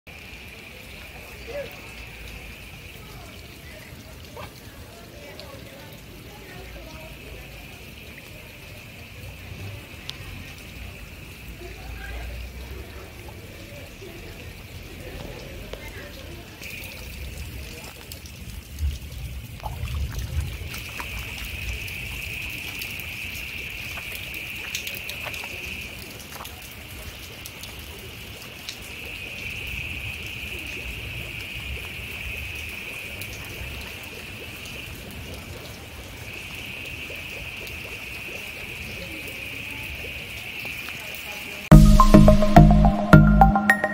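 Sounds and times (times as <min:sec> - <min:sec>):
heavy rain on water: 0:00.1 - 0:41.8
high-pitched drone: 0:41.7 - 0:43.9.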